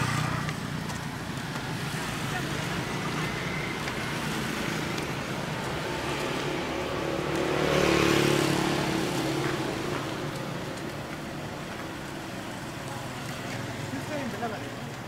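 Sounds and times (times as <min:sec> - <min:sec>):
vehicle engine passing: 0:00.0 - 0:14.7
street traffic: 0:00.0 - 0:15.0.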